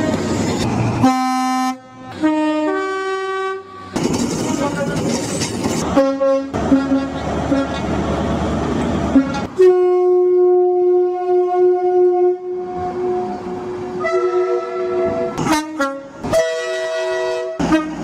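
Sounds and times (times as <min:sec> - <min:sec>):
train passing rumble: 0:00.0 - 0:18.0
train two-tone horn: 0:01.0 - 0:04.0, 0:05.9 - 0:07.8, 0:09.1 - 0:18.0.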